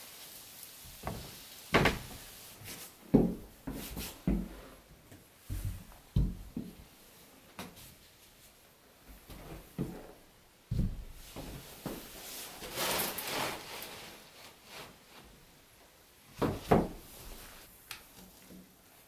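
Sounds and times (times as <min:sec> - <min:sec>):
board scraping slide: 0:12.5 - 0:15.0.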